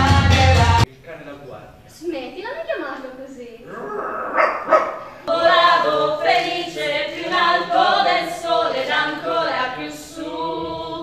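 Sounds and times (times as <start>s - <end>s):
group singing without instruments: 0.0s - 0.9s, 4.8s - 11.0s.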